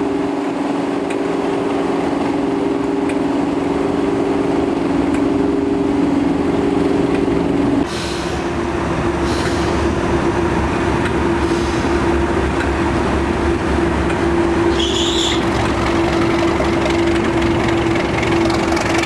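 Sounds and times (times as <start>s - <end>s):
high-pitched whistle: 14.8s - 15.4s
diesel engine idling: 15.0s - 19.0s.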